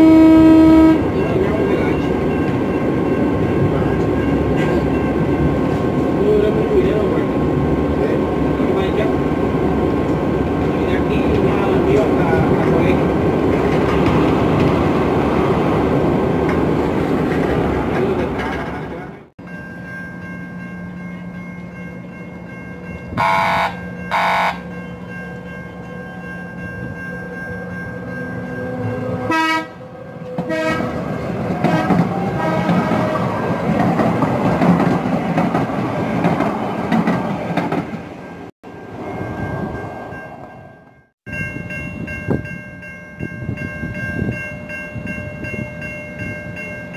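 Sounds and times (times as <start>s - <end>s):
train horn blasts: 0.0s - 1.2s, 23.2s - 24.7s, 28.6s - 33.5s
train motors and wheels rumbling: 0.0s - 46.9s
ringing chime: 19.4s - 23.2s, 38.7s - 46.9s.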